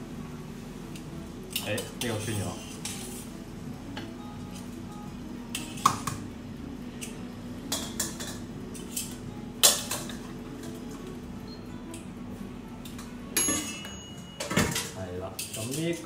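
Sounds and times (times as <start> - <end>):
steady low hum: 0.0 - 2.0, 2.6 - 14.5
tongs in steel pan: 1.0 - 3.2.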